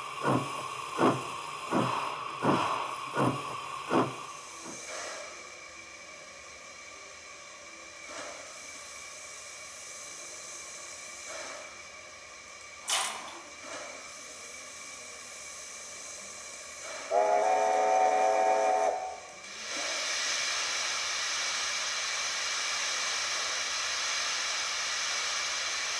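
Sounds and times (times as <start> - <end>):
hiss of steam: 0.0 - 25.9
steam whistle: 17.0 - 19.4.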